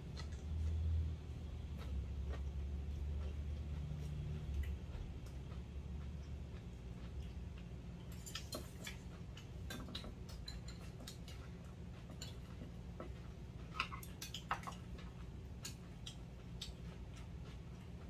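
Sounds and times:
people chewing: 0:00.0 - 0:01.0, 0:01.6 - 0:18.0
steady low hum: 0:00.0 - 0:18.0
cutlery clicking on ceramic bowls: 0:08.0 - 0:11.5, 0:13.7 - 0:14.8.

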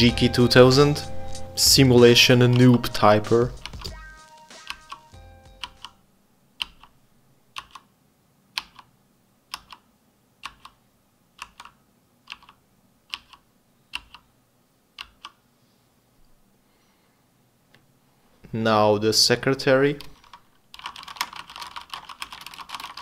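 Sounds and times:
mechanical keyboard typing: 0:02.2 - 0:02.9, 0:03.5 - 0:04.0, 0:04.6 - 0:06.0, 0:06.6 - 0:06.9, 0:07.6 - 0:07.9, 0:08.6 - 0:08.9, 0:09.5 - 0:09.8, 0:10.4 - 0:10.8, 0:11.4 - 0:14.2, 0:15.0 - 0:15.4, 0:20.0 - 0:23.0.

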